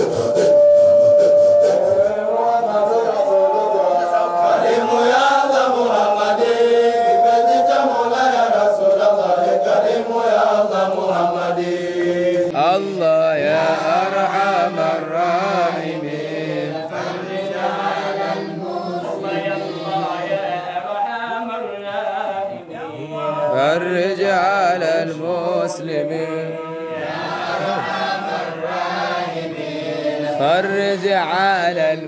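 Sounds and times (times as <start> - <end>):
voices chanting devotional song: 0.0 - 32.0.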